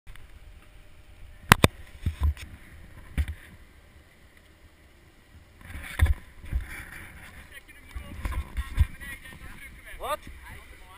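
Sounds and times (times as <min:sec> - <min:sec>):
sharp camera housing clicks: 0:01.5 - 0:02.4.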